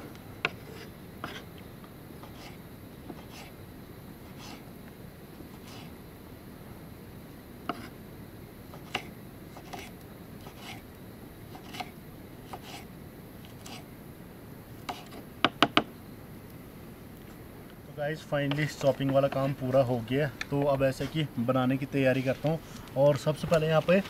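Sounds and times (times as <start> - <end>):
knife chopping vegetables: 8.8 - 9.9, 11.6 - 11.9, 14.9 - 15.8.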